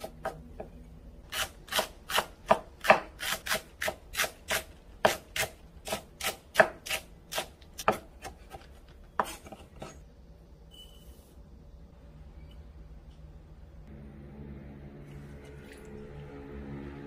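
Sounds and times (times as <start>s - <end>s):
knife chopping on cutting board: 1.4s - 10.0s.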